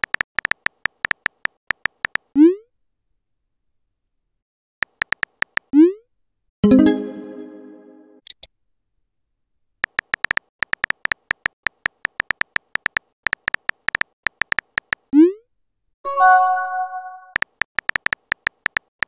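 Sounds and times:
synthetic key-tap clicks: 0.0s - 2.3s, 4.8s - 5.7s, 9.8s - 15.1s, 17.3s - 19.0s
chat app chime: 6.6s - 8.1s, 16.1s - 17.4s.

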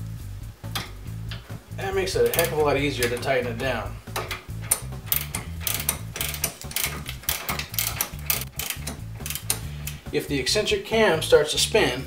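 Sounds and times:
background music: 0.0s - 12.0s
ratchet wrench clicking: 2.1s - 10.0s.

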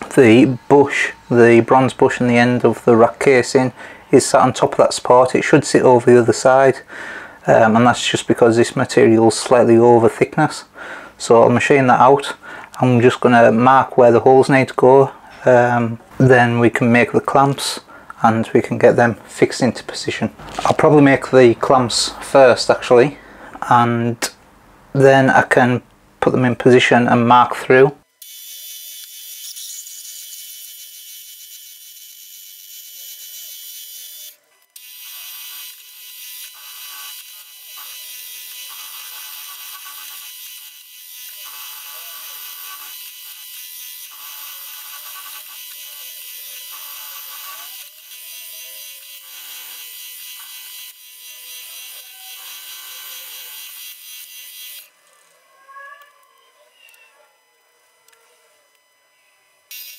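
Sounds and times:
machine running tone: 28.1s - 54.9s, 57.4s - 59.9s.

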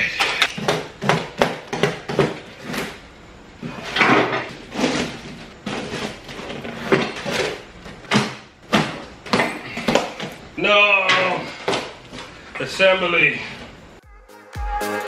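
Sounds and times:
cardboard scraping and rustling: 3.6s - 8.0s.

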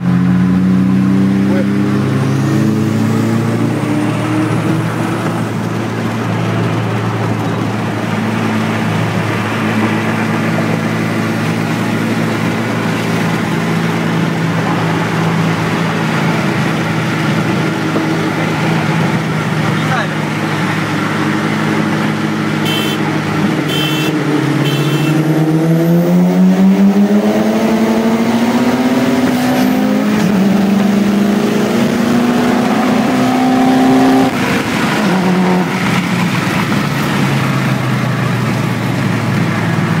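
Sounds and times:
car engine accelerating hard: 0.0s - 40.0s.

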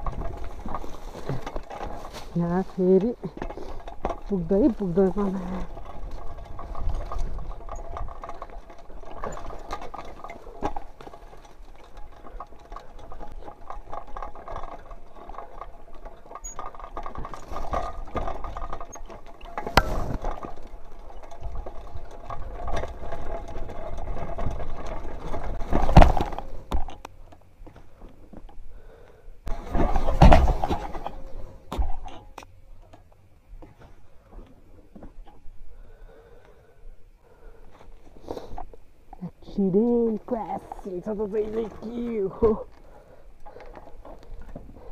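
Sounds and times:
bike hitting bumps: 0.0s - 28.8s, 29.5s - 35.6s
bike frame rattling: 0.0s - 44.9s
bike tyres on loose dirt: 0.0s - 44.9s.

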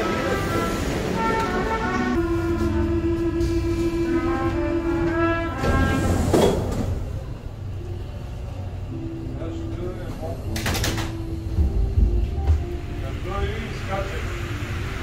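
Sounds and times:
low rumble of train: 0.0s - 15.0s
sliding doors shutting with thump: 5.0s - 7.2s.

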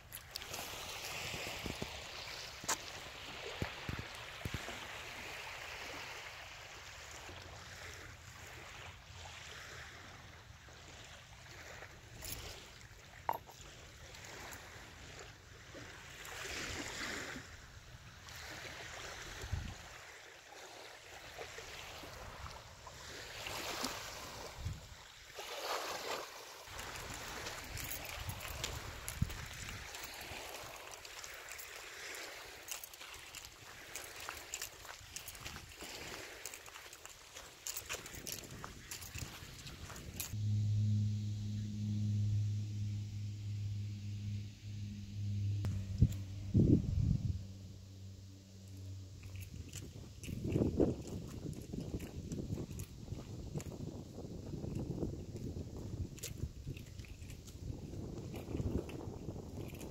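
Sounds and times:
outdoor ambient hiss: 38.7s - 51.1s.

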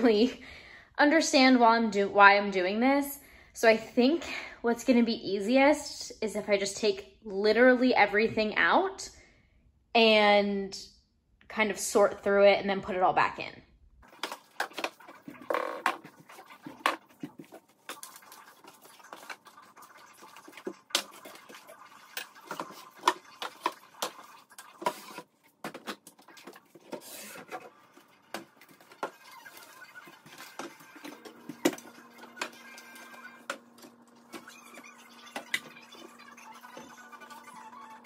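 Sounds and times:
jars and packages clacking: 14.0s - 37.7s.

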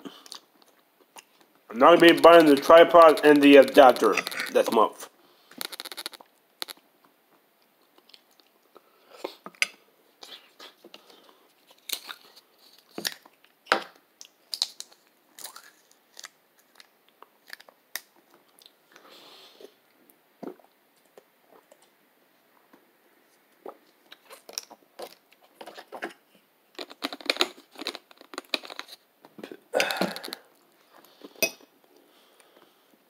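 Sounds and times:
person chewing: 5.6s - 6.8s, 14.2s - 18.8s.

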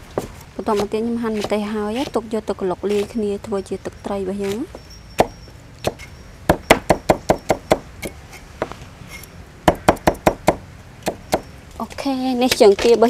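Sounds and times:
knife chopping on wooden board: 0.7s - 2.2s.

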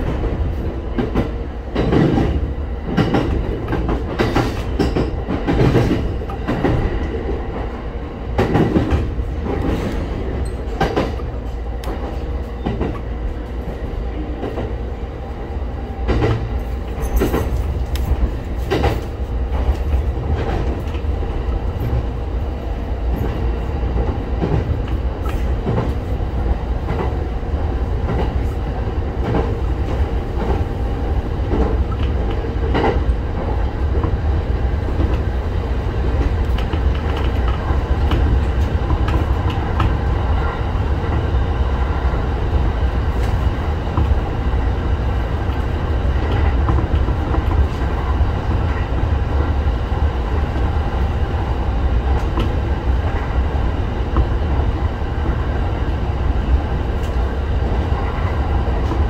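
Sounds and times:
wheels clacking over rail joints: 0.0s - 7.7s
train wheels rumbling on rail: 0.0s - 59.0s.

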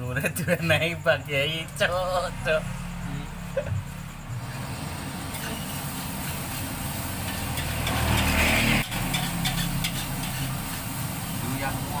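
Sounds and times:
wok burner rumbling: 1.4s - 12.0s
rice sizzling in a wok: 3.8s - 12.0s.

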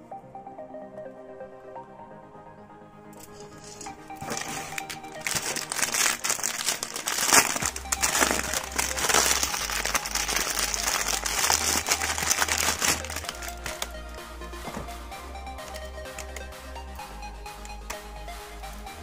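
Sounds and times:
background music with bass: 0.0s - 19.0s
plastic bag crinkling: 3.3s - 14.1s.

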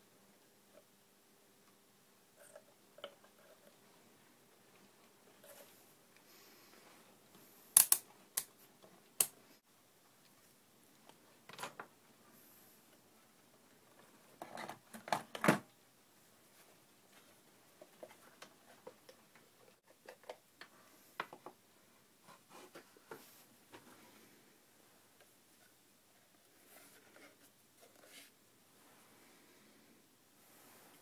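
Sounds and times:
sharp clicks: 7.8s - 8.5s.

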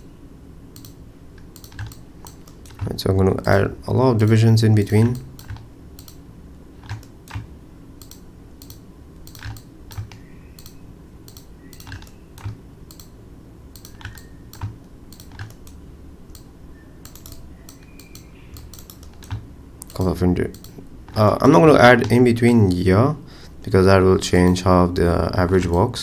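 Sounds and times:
keyboard and mouse clicking: 0.8s - 3.0s, 5.0s - 6.2s, 6.8s - 21.2s.

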